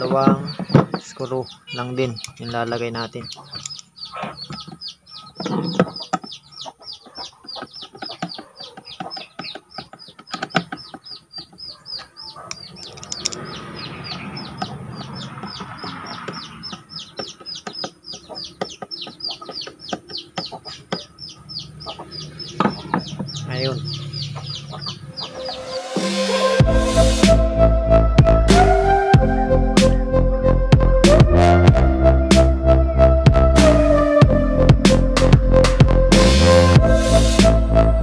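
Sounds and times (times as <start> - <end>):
chicks peeping: 0.0 - 26.7.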